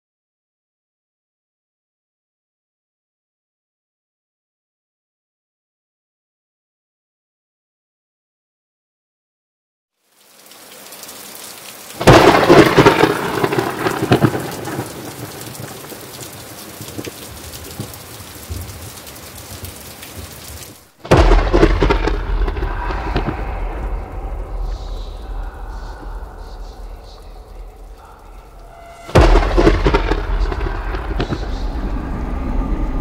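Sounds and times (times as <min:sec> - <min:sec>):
heavy rain: 0:10.0 - 0:33.0
thunder cracks and rumbles: 0:12.0 - 0:17.1, 0:21.0 - 0:33.0.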